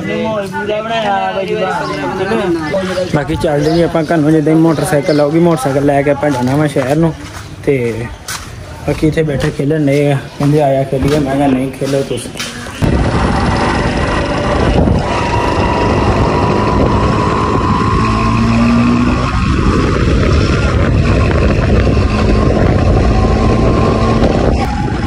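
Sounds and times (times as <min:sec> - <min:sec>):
motorcycle engine running: 0:12.8 - 0:25.0.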